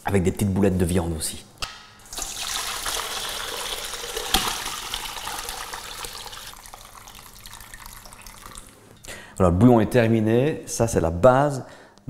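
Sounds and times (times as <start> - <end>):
liquid pouring and splashing: 2.0 - 8.9.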